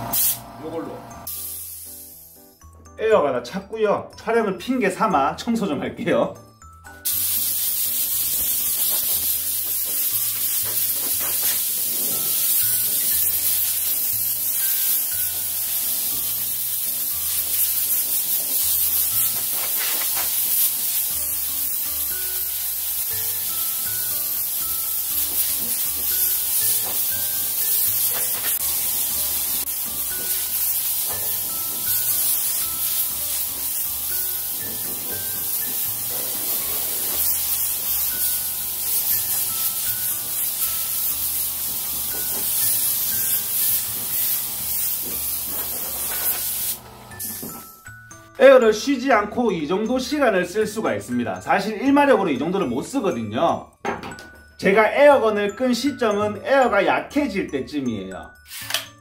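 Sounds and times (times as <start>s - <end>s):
air gun hissing: 0.0s - 0.5s, 1.2s - 2.3s, 7.0s - 47.6s, 58.4s - 58.9s.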